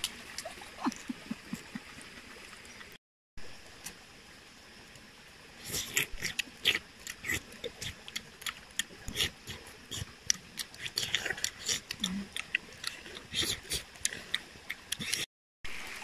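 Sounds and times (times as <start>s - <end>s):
fruit being peeled and eaten: 5.6s - 15.3s
wet mouth clicks: 5.7s - 15.3s.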